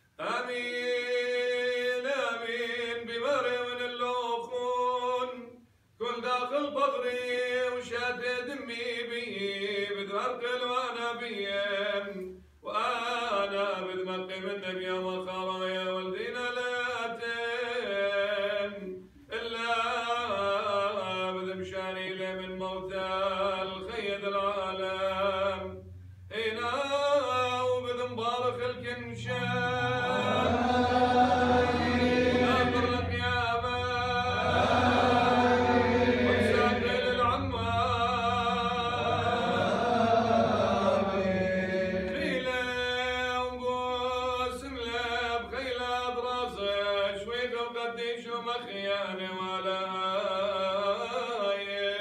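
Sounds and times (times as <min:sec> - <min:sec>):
man chanting: 0:00.2 - 0:52.0
many voices singing together: 0:29.5 - 0:33.3, 0:33.9 - 0:42.8.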